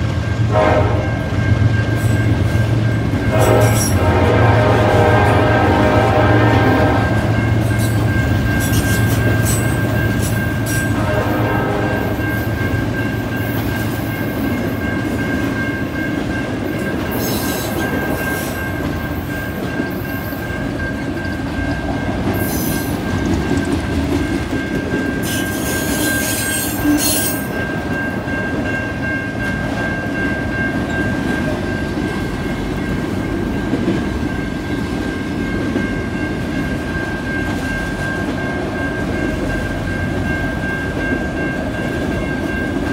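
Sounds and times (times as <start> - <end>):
train wheels rumbling on rail: 0.0 - 42.9
wheels screeching on rail: 1.8 - 12.4, 22.3 - 23.8, 24.6 - 27.6
high-pitched wheel squeal: 25.2 - 27.5.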